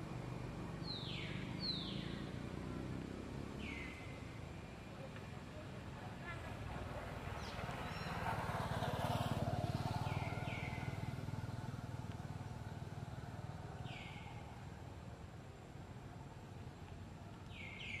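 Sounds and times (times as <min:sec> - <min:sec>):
motorbike engine passing by: 0:00.3 - 0:04.3, 0:06.1 - 0:14.7.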